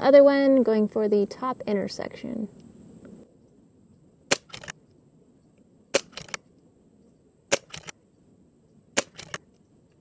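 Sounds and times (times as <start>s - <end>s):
quiet mechanical clicks: 2.6s - 6.4s, 8.7s - 10.0s
air rifle shots: 4.3s - 4.8s, 5.9s - 6.4s, 7.5s - 8.0s, 9.0s - 9.4s.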